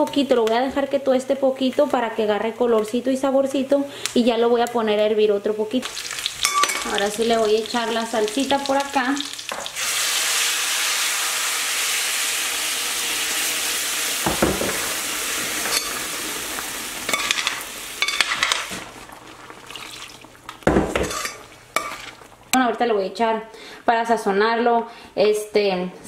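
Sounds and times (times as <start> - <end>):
sauce sizzling in hot pan: 5.7 - 22.6.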